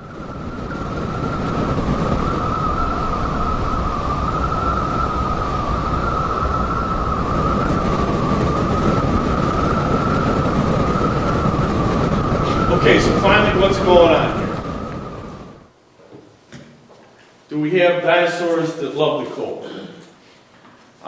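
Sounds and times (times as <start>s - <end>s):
wind buffeting microphone: 0.0s - 15.7s
blizzard wind whistling: 0.0s - 15.8s.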